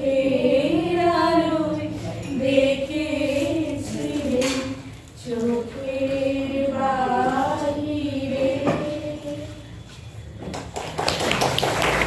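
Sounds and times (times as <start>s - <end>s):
women singing together: 0.0s - 9.8s
people clapping: 10.4s - 12.0s.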